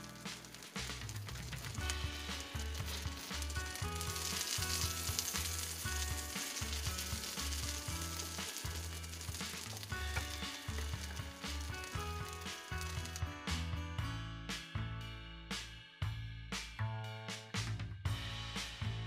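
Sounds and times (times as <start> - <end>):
batter sizzling on a griddle: 0.0 - 13.7
background music with bass line: 0.0 - 19.0.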